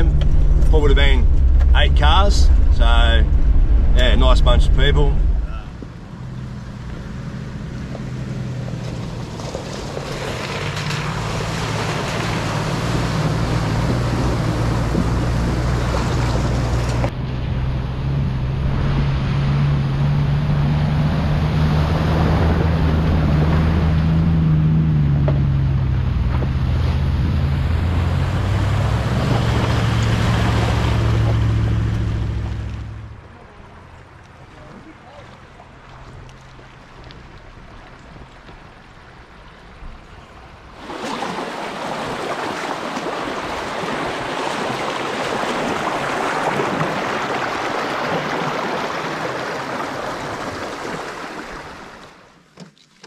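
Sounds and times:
vehicle engine running under load: 0:00.0 - 0:40.8
water rushing and splashing: 0:00.0 - 0:52.5.

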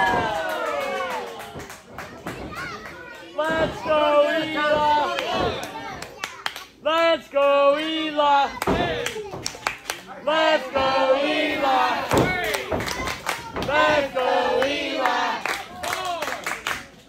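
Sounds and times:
crowd shouting and chanting: 0:00.0 - 0:01.5, 0:03.2 - 0:06.0, 0:10.1 - 0:16.2.

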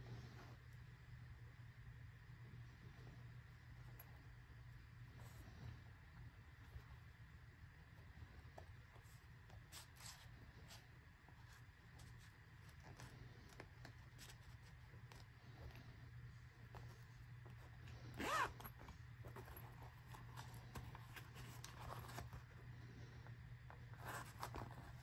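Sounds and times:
leather and cards rubbing: 0:08.9 - 0:15.8, 0:16.6 - 0:22.6, 0:23.8 - 0:25.0
zipper pulled open: 0:17.9 - 0:22.3.

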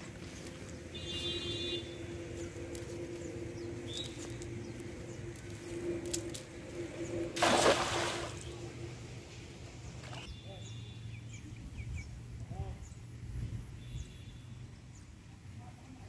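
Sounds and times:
engine hum: 0:00.0 - 0:10.4.

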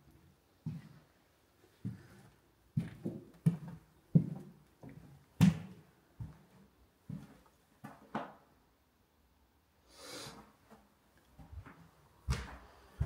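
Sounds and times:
footsteps on wooden floor: 0:01.8 - 0:08.0, 0:11.4 - 0:13.0.

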